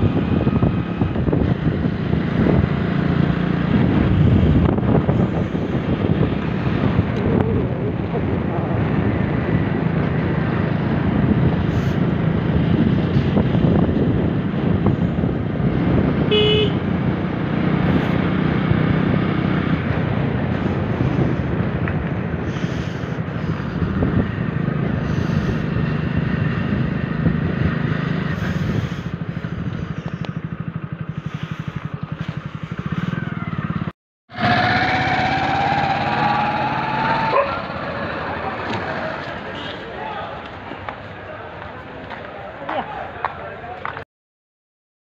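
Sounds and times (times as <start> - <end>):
motorcycle engine running: 0.0 - 9.2, 9.8 - 39.7
wind noise on microphone: 0.0 - 33.9
short horn beep: 16.3 - 16.8.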